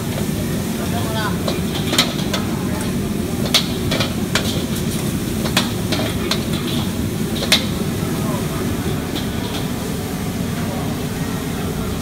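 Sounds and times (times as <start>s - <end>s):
food sizzling: 0.0s - 12.0s
gas burner roaring: 0.0s - 12.0s
metal ladle clanging on wok: 1.3s - 10.0s.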